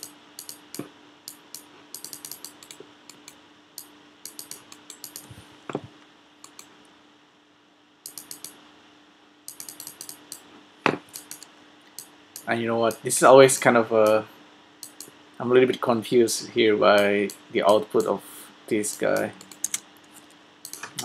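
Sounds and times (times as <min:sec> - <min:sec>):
computer mouse clicks: 0:00.0 - 0:05.3, 0:06.4 - 0:06.7, 0:08.0 - 0:08.6, 0:09.5 - 0:10.4, 0:11.1 - 0:13.0, 0:14.8 - 0:15.2, 0:18.8 - 0:19.8, 0:20.6 - 0:21.0
low steady hum: 0:00.0 - 0:21.0.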